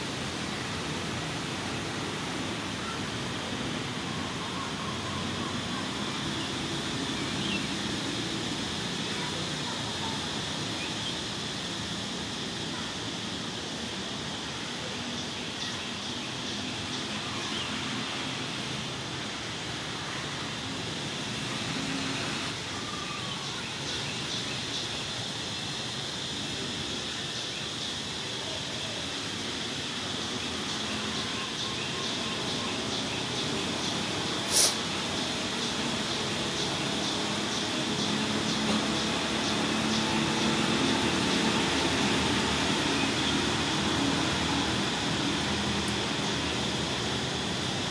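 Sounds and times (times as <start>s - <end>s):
outdoor hiss and hum: 0.0s - 47.9s.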